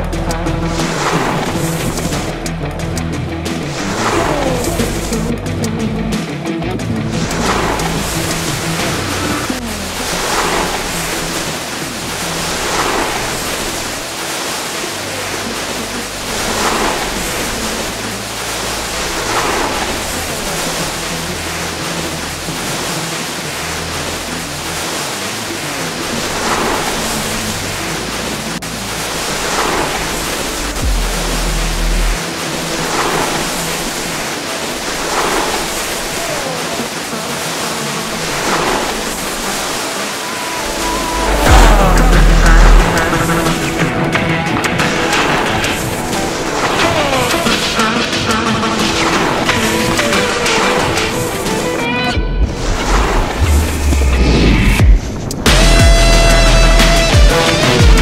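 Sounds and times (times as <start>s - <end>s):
music: 0.0s - 33.7s, 39.8s - 58.0s
wind rush: 38.2s - 55.5s.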